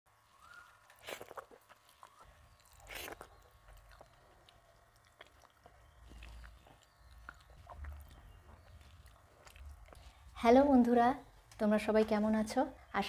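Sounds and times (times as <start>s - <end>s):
close-up chewing: 0.2s - 11.6s
wet mouth clicks: 0.9s - 10.1s.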